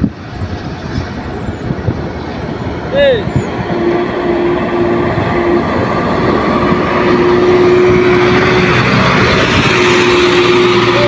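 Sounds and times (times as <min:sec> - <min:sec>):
diesel truck engine under load: 0:00.0 - 0:11.0.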